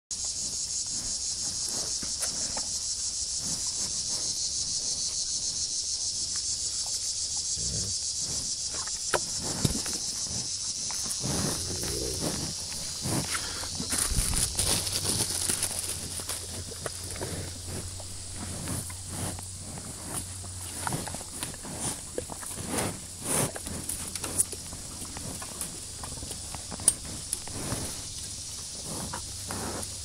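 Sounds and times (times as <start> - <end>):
pulsing insect chorus: 0.1 - 30.0
rustling and bumps: 11.2 - 21.4.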